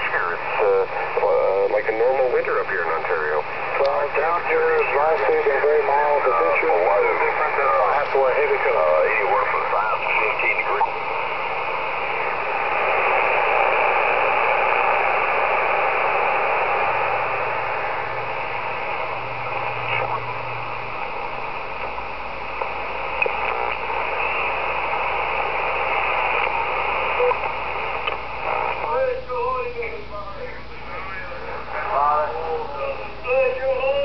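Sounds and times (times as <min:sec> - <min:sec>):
radio static hiss: 0:00.0 - 0:34.0
faint radio whistles: 0:22.5 - 0:28.9.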